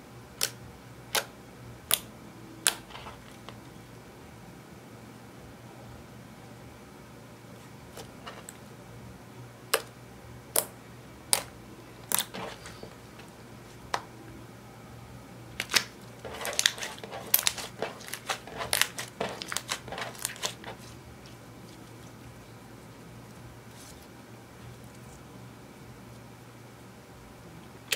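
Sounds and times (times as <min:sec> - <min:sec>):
slime popping and crackling: 0:11.3 - 0:12.8, 0:15.6 - 0:20.9.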